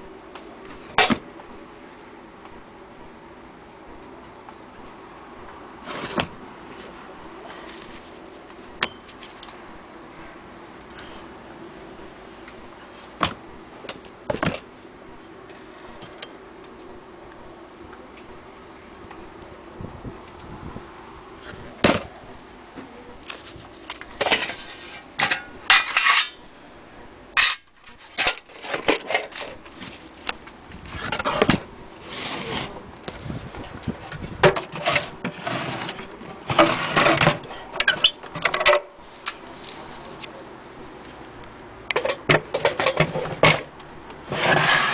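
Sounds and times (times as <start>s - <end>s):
knocks and clinks of metal and wood: 24.2s - 26.4s, 41.9s - 43.7s.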